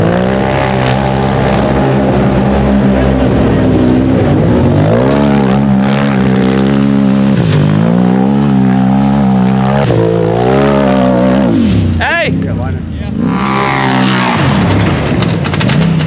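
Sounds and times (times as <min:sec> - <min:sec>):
buggy engine revving hard: 0:00.0 - 0:16.0.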